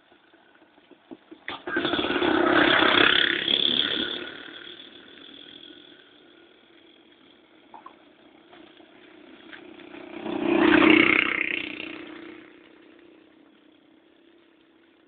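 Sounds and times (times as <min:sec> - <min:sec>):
vehicle engine hum: 0:00.0 - 0:15.0
vehicle passing close by: 0:09.4 - 0:13.2.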